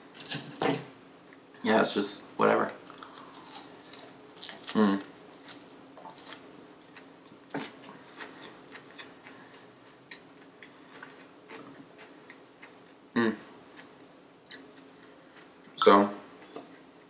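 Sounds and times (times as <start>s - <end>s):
lettuce crunching while chewing: 2.9s - 12.9s.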